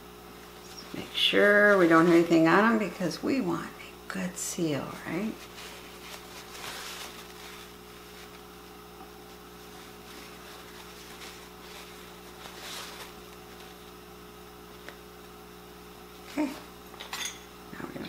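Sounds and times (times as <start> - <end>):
paper towel rubbing glass: 0.5 - 3.1, 5.0 - 8.6, 9.3 - 14.0.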